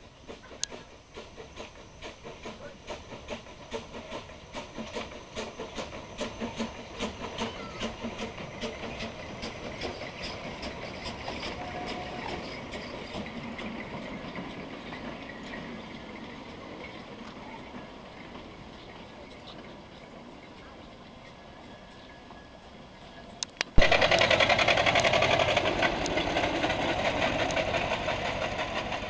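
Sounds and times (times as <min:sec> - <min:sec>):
steam hiss: 0:00.0 - 0:20.4
steam locomotive chuffing: 0:00.0 - 0:29.0
wagons rumbling over rails: 0:00.0 - 0:29.0.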